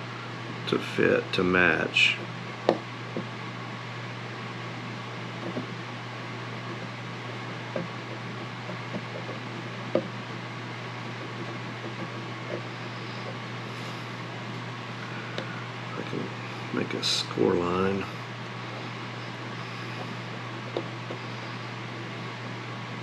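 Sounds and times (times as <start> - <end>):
low hum: 1.7 - 23.0
caliper scratching wood veneer: 6.5 - 14.2.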